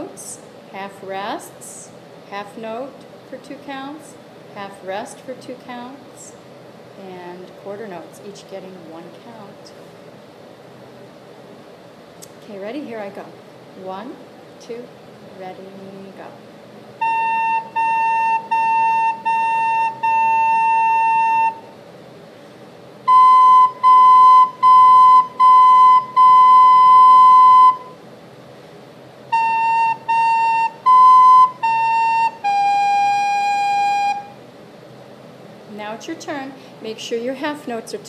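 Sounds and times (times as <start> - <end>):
soprano recorder playing tune: 17.0 - 21.6, 23.1 - 28.0, 29.3 - 34.4.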